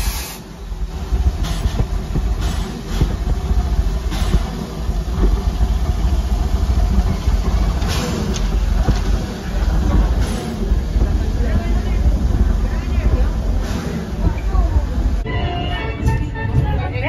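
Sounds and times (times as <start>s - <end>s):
steam hissing: 0.0s - 15.9s
steam locomotive rumbling: 0.0s - 17.0s.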